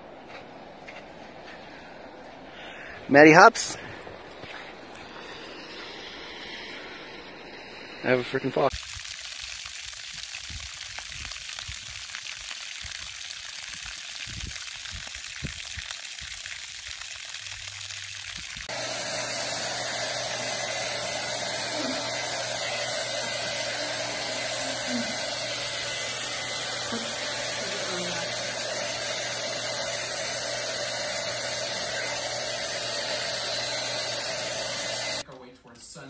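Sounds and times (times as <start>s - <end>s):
electric blower motor rushing: 18.5s - 35.2s.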